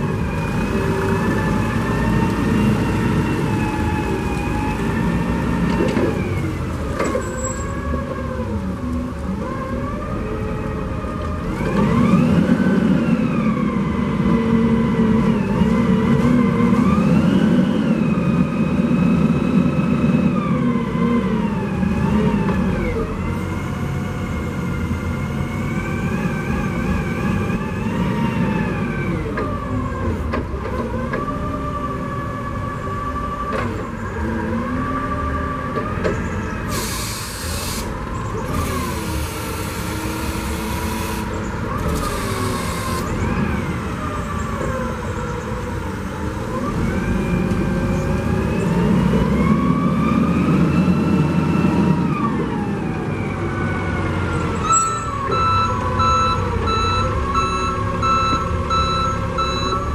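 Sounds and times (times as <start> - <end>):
forklift engine revving: 34.2 - 52.4
short hiss bursts: 36.7 - 37.9.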